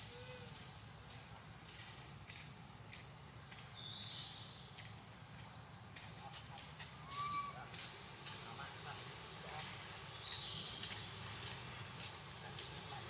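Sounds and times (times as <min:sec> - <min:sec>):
insects droning: 0:00.0 - 0:13.0
short whistled calls: 0:07.0 - 0:07.7.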